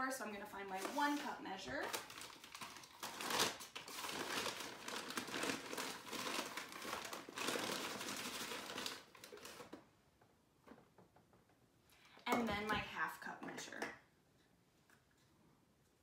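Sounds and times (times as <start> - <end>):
paper bag rustling: 0.7 - 9.8.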